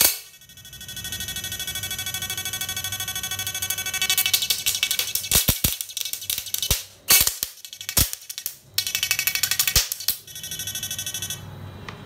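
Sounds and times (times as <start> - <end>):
sharp electrical cracks: 4.2 - 8.6.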